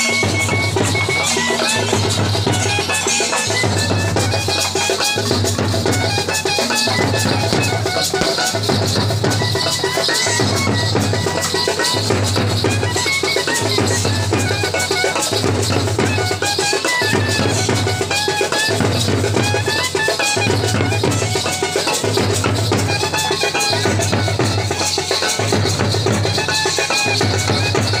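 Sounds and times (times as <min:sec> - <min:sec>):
drum band playing: 0:00.0 - 0:28.0
high melody line: 0:00.0 - 0:28.0.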